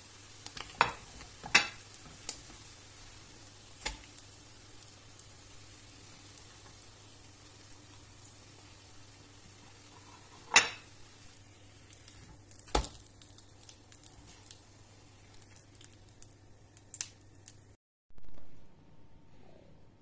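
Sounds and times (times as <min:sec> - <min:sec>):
utensils clinking on cookware: 0:10.0 - 0:10.9
faint low hum: 0:18.2 - 0:20.0.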